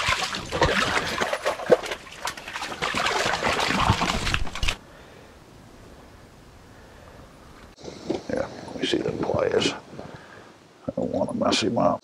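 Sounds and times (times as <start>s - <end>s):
fish splashing in water: 0.0s - 4.8s
faint hiss: 4.8s - 12.0s.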